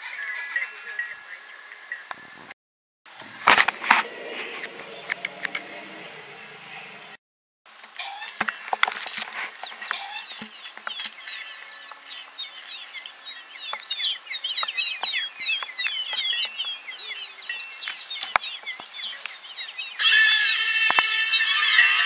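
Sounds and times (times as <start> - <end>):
chicks peeping: 8.0 - 21.9.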